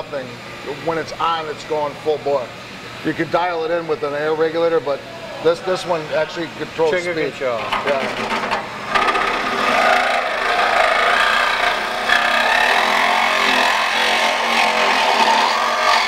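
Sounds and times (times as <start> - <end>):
reciprocating saw cutting sheet metal: 8.8 - 16.0.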